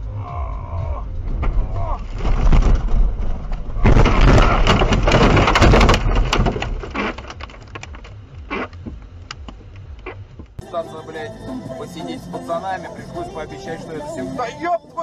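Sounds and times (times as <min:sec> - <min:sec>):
crunching and clattering debris: 0:01.1 - 0:09.4
car collision crash: 0:01.2 - 0:08.0.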